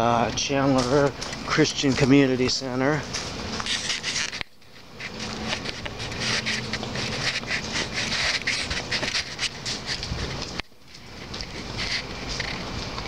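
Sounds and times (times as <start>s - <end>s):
handheld camera rustling: 0.4s - 13.0s.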